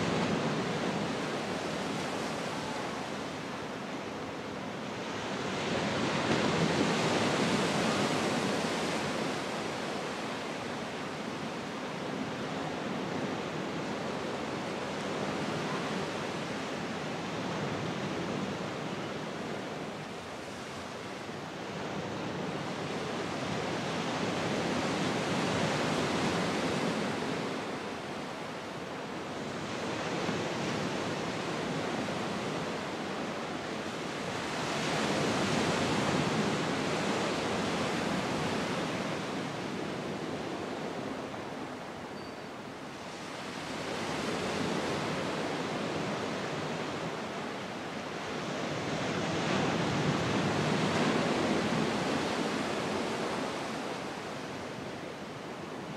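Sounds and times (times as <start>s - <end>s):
sea surf breaking on a beach: 0.0s - 55.9s.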